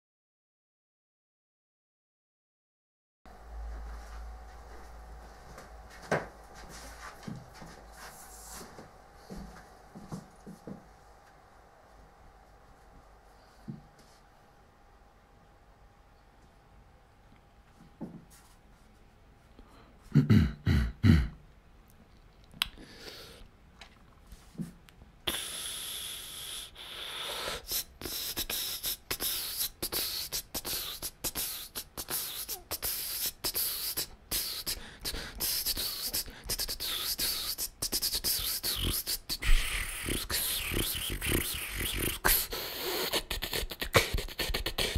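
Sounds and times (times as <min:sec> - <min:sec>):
beatboxing into a microphone: 0:25.3 - 0:44.9.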